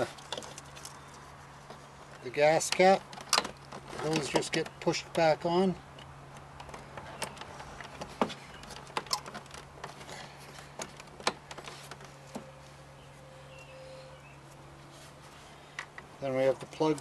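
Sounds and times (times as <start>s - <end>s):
clicks and knocks of plastic parts: 2.1s - 12.5s.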